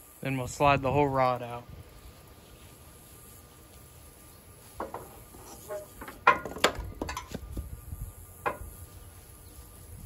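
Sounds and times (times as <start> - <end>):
metal clinks and knocks: 4.8 - 7.4.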